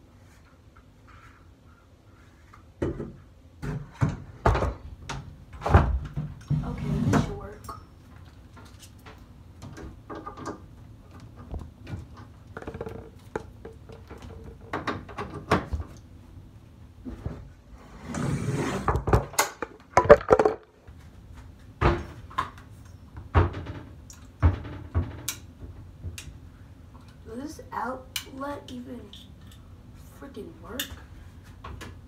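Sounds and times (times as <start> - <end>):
objects clicking and knocking: 19.1 - 20.7.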